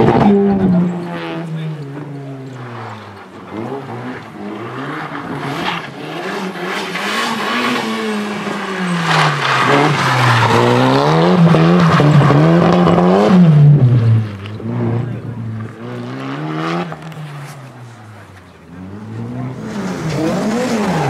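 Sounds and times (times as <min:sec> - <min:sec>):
car engine revving hard: 0:02.8 - 0:17.2, 0:18.6 - 0:21.0.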